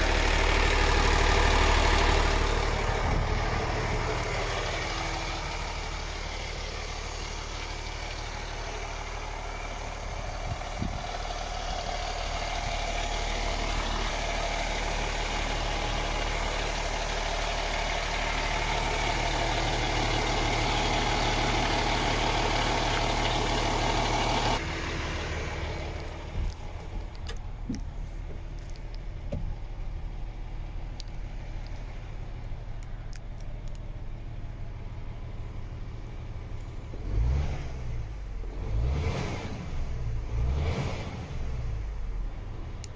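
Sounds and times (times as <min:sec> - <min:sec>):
diesel truck engine idling: 0:00.0 - 0:38.8.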